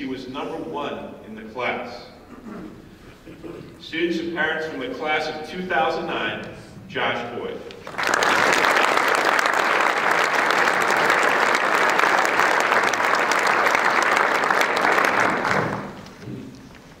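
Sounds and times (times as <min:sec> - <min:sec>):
audience applauding: 0:07.8 - 0:16.2.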